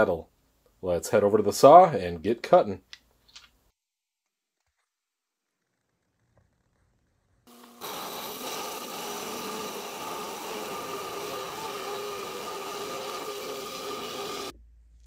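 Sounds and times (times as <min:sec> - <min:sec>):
trim saw blade cutting rock: 0:07.5 - 0:14.5.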